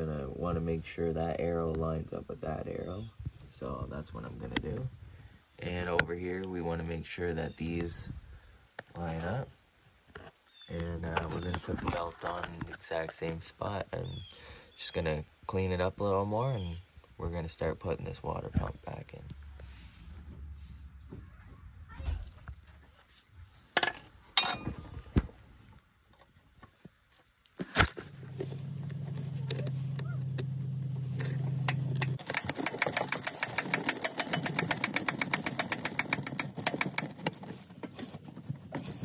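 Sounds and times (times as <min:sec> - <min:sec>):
metal parts knocking: 0:23.8 - 0:24.8, 0:31.3 - 0:37.7
ratchet wrench clicking: 0:31.7 - 0:37.4.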